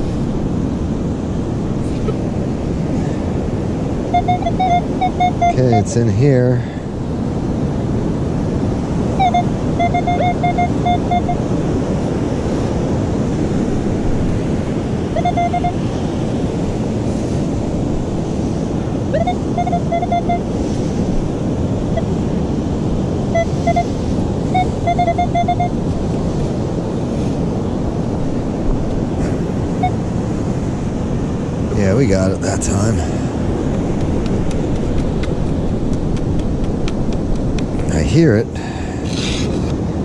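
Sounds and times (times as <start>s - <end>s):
surf: 0.0s - 40.0s
wind: 0.0s - 40.0s
metal detector short beeps: 4.1s - 5.9s, 9.2s - 11.4s, 15.2s - 15.8s, 19.1s - 20.4s, 23.4s - 23.9s, 24.5s - 25.8s.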